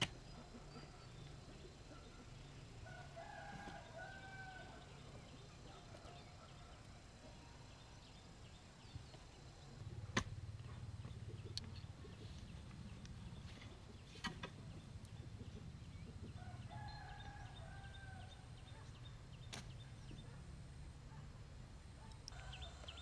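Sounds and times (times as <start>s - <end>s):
rooster crowing: 2.8s - 4.9s, 16.4s - 18.4s, 22.3s - 23.0s.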